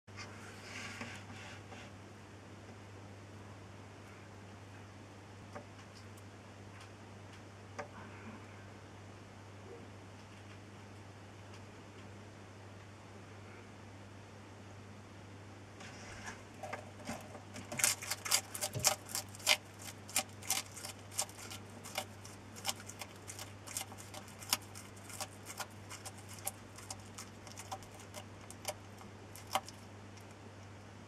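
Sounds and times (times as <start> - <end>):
faint low hum: 0.1 - 31.0
lizard crunching insect shell: 17.5 - 30.4.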